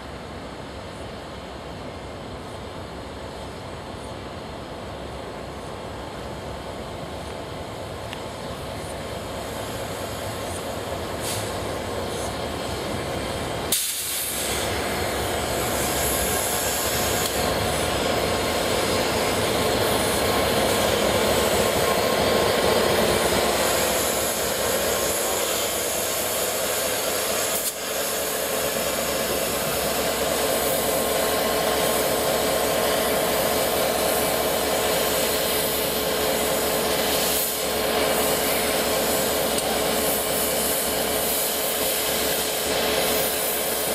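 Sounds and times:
steam hissing: 2.4s - 43.9s
diesel engine running: 8.3s - 43.9s.

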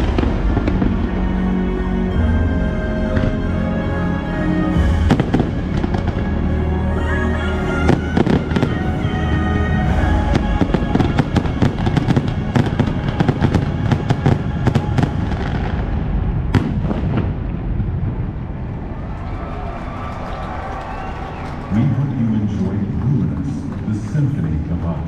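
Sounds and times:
fireworks bangs and crackles: 0.0s - 3.7s, 4.7s - 6.7s, 7.8s - 19.2s
orchestral music: 0.0s - 25.0s.

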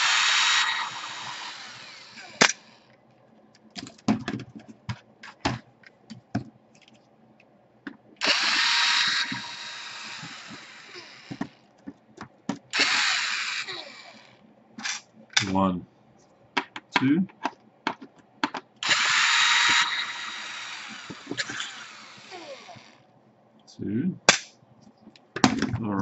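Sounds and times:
cordless drill running: 0.0s - 2.9s, 8.2s - 11.6s, 12.7s - 14.4s, 18.8s - 23.0s
handling clicks and knocks: 16.6s - 18.8s.

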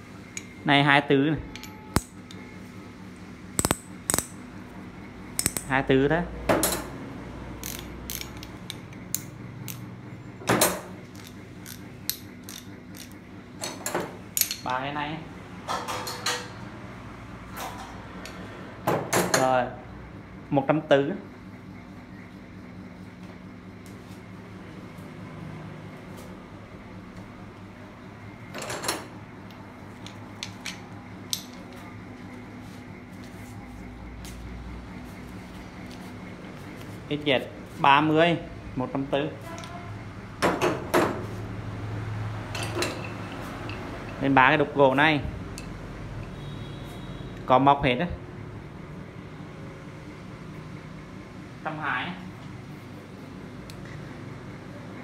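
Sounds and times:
steady low hum: 0.0s - 55.0s
metal tools clicking and clinking: 1.4s - 2.4s, 3.6s - 4.4s, 5.4s - 5.8s, 7.6s - 14.8s, 30.0s - 31.7s.

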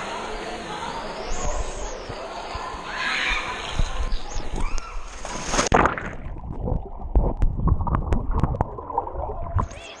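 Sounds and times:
splash into swimming pool: 2.8s - 6.4s
underwater sloshing and bubbling: 5.2s - 9.8s
underwater knocks and clicks: 5.8s - 9.7s.

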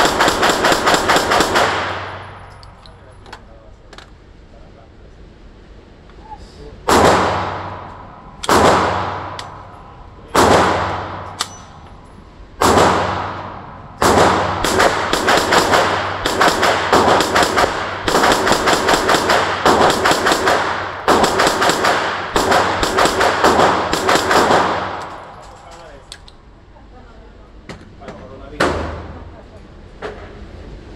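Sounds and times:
rapid strings of gunshots: 0.0s - 2.2s, 12.6s - 25.1s
echoing gunshots: 0.0s - 2.5s, 6.8s - 9.7s, 10.3s - 11.4s, 12.6s - 25.4s.

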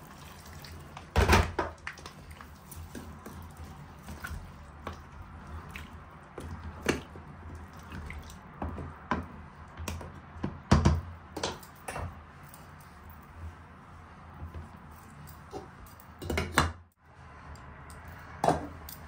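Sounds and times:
stew sloshing while stirred: 0.0s - 10.7s.

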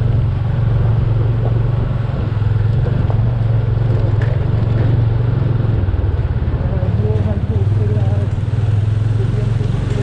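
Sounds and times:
motorcycle engine droning: 0.0s - 10.0s.

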